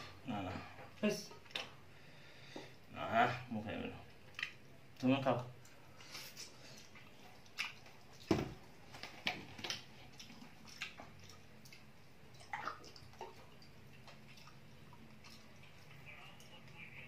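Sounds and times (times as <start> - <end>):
wet eating squelches and clicks: 4.0 - 17.0.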